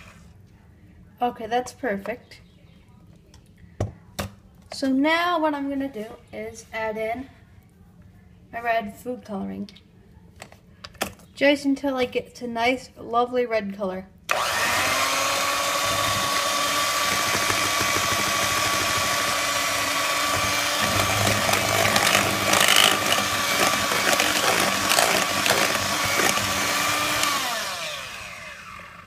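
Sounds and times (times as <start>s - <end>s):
electric hand mixer whining: 14.3s - 29.0s.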